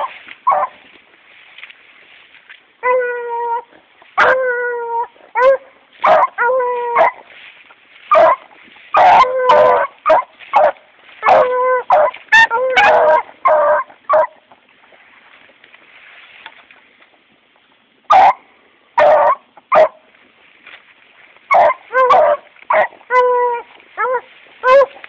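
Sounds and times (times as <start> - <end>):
hound dog baying: 0.0 - 0.8, 2.8 - 7.2, 8.1 - 14.4, 21.5 - 25.0.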